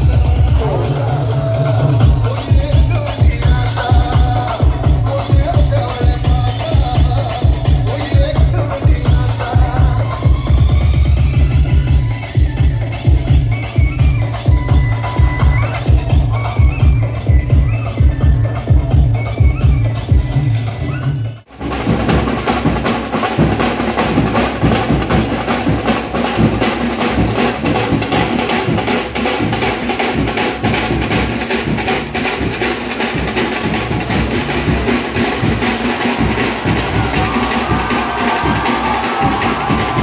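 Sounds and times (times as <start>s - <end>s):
fast dense drumming: 0.0s - 19.6s, 21.5s - 40.0s
electronic dance music: 0.0s - 21.4s, 33.6s - 40.0s.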